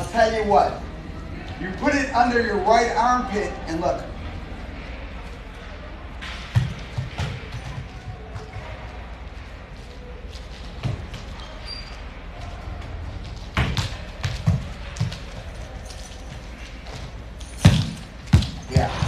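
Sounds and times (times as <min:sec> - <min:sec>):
steady low hum: 0:00.0 - 0:19.0
dull thuds in echoing hall: 0:06.1 - 0:08.9, 0:17.6 - 0:19.0.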